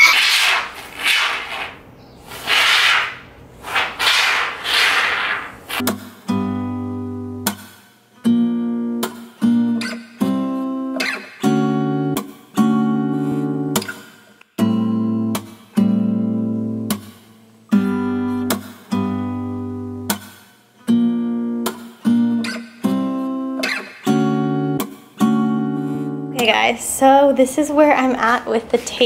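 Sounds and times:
spray foam can hissing: 0.0 - 5.9
acoustic guitar music: 5.6 - 29.0.

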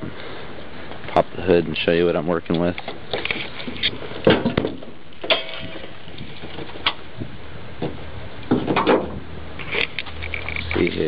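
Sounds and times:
car hood clatter: 7.8 - 9.2
car hood clicks and knocks: 7.8 - 9.2.

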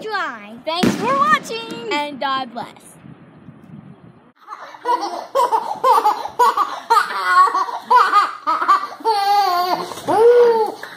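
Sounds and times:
small child giggling: 4.4 - 10.9.

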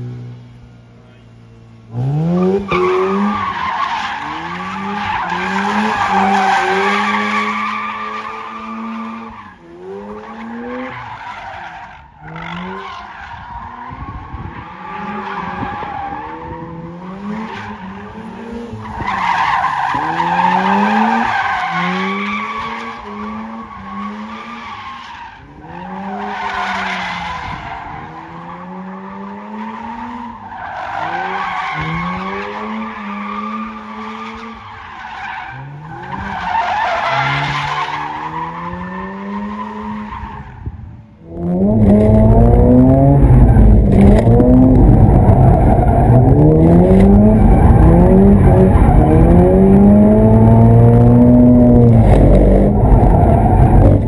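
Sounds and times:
rotary engine revving: 1.9 - 11.1, 41.3 - 54.0.

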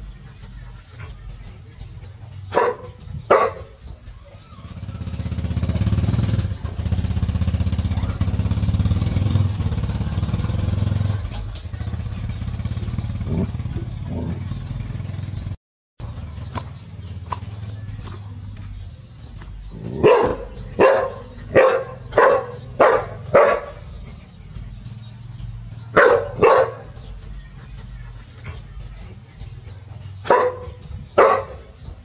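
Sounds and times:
motorcycle engine running: 0.0 - 32.0
dog barking: 2.5 - 3.8, 20.0 - 23.8, 25.9 - 26.9, 30.2 - 31.8.

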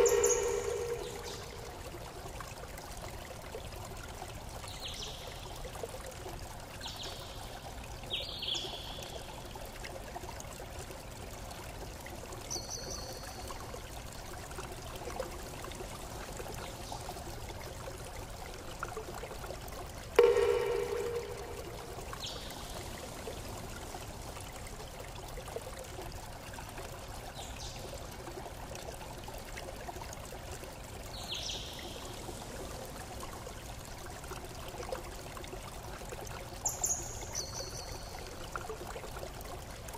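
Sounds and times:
short high falling chirps: 0.0 - 1.7
loud pitched tone: 0.0 - 1.8, 20.2 - 22.2
running water: 0.0 - 39.9.

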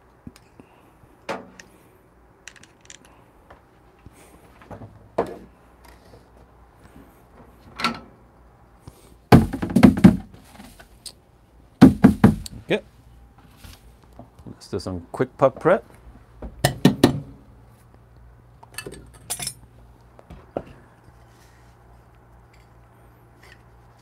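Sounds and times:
loud knocks and thuds: 9.3 - 10.4, 11.8 - 12.4
tools clattering on wooden bench: 18.7 - 19.6.

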